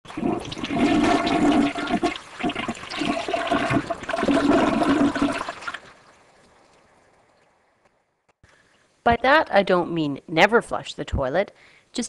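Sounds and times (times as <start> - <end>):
toilet flushing: 0.1 - 6.2.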